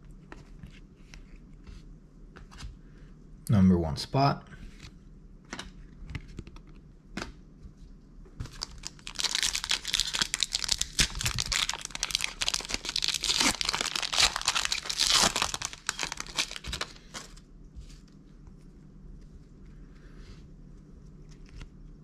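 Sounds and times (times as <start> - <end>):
foil wrapper crinkling and tearing: 8.4 - 17.4.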